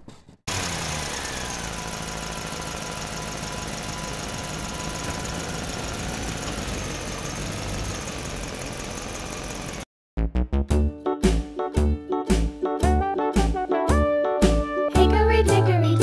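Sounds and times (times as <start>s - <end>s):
truck engine idling: 0.5s - 9.9s.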